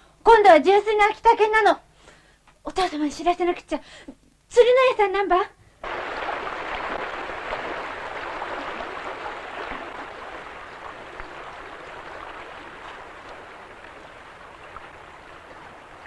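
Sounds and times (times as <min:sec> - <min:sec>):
stream water running: 0:05.8 - 0:16.0.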